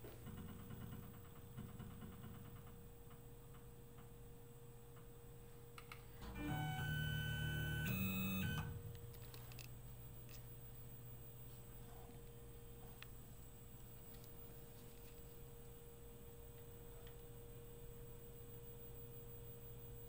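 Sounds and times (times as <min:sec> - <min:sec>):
stepper motors whining: 0:06.2 - 0:08.8.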